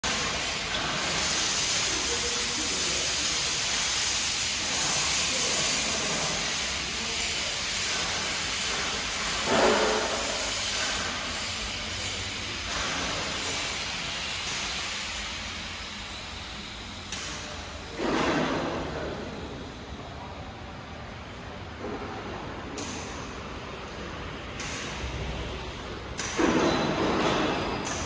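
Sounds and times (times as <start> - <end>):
lathe machine hissing: 0.0 - 17.9.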